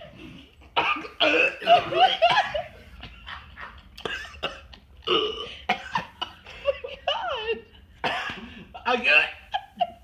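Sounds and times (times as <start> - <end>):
hard laughter: 1.2 - 4.4
man gagging: 8.8 - 9.6.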